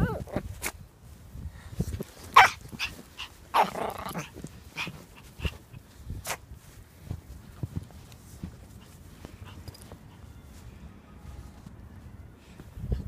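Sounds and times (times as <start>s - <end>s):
footsteps in snow: 0.3s - 13.0s
small dog barking: 2.4s - 5.0s.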